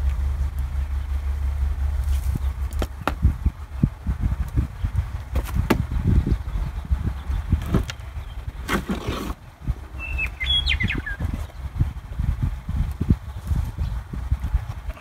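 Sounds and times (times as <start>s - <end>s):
low uneven rumbling: 0.0s - 15.0s
bird chirping: 5.9s - 11.9s.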